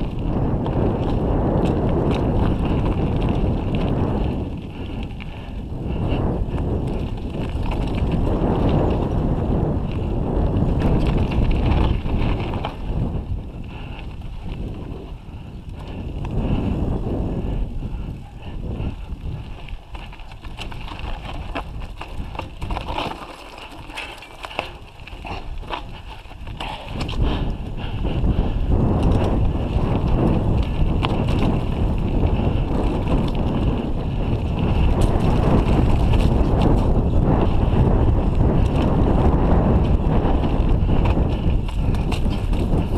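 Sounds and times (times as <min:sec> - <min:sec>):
bike rattling over stones: 0:00.0 - 0:42.9
wind rumble on microphone: 0:00.0 - 0:42.9.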